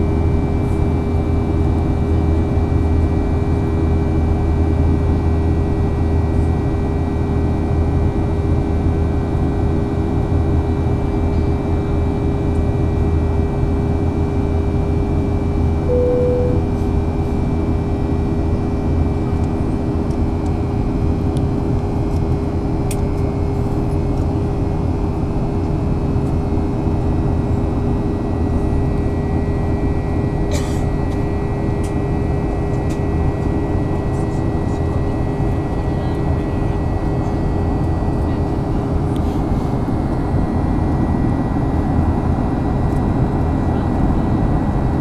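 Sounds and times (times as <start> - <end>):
jet engine hum: 14.0 - 17.4.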